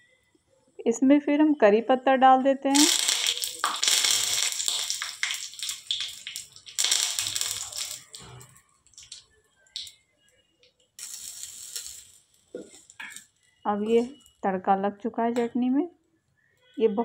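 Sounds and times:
spices sizzling and crackling in oil: 2.7 - 9.2, 11.0 - 13.3.

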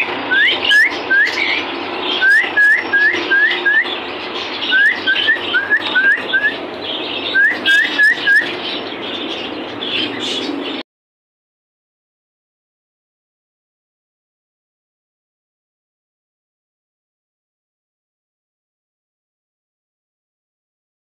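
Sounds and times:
steady background noise: 0.0 - 10.8
parakeet whistled calls: 0.3 - 10.7.

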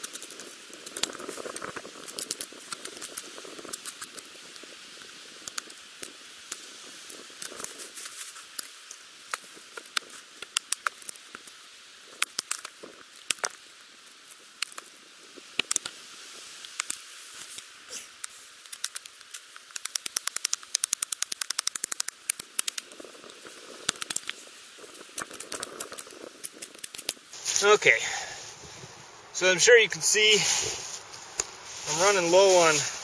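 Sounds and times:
steady hiss: 12.8 - 33.0
wood sticks clicking and knocking: 18.2 - 22.9, 23.8 - 24.4, 25.2 - 27.8.

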